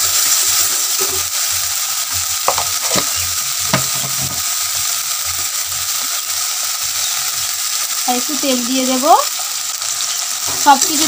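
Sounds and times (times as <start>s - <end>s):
spice paste sizzling in oil: 0.0s - 11.0s
spatula stirring and scraping: 2.1s - 4.5s
spatula knocking against pan: 2.5s - 3.1s, 3.7s - 4.4s.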